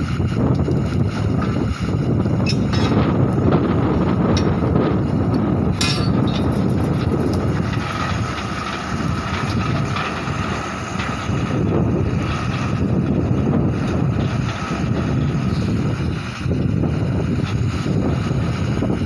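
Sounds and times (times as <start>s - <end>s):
drilling rig and compressor running: 0.0s - 19.0s
sharp metal clank: 2.4s - 3.0s, 5.8s - 6.7s.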